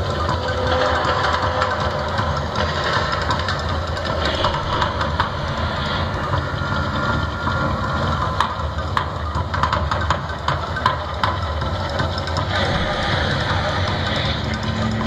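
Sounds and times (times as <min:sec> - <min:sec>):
deep steady rumble: 0:00.9 - 0:09.1, 0:12.4 - 0:15.0.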